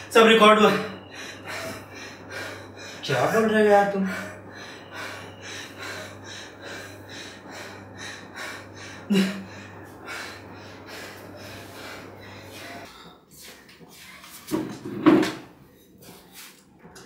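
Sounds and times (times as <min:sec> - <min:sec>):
steady low hum: 0:00.0 - 0:14.2
man panting: 0:01.0 - 0:13.7
man gasping: 0:08.8 - 0:13.0.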